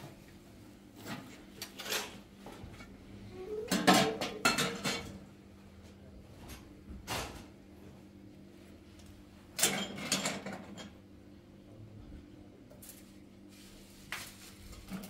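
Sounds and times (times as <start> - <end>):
metal pots clattering: 3.7 - 5.2.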